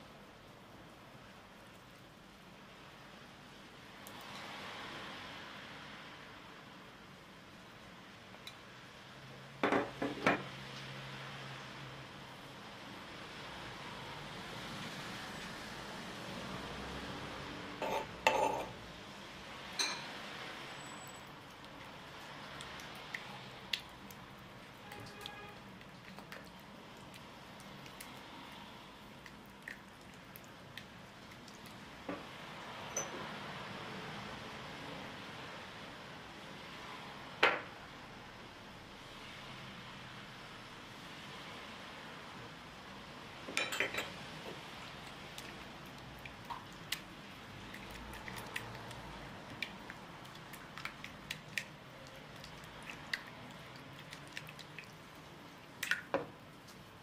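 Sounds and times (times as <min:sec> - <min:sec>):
spatula squishing butter: 0:44.6 - 0:57.0.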